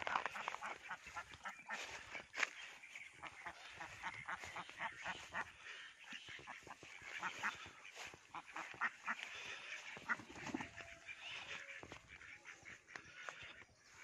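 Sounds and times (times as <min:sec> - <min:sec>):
ducks quacking: 0:00.0 - 0:14.0.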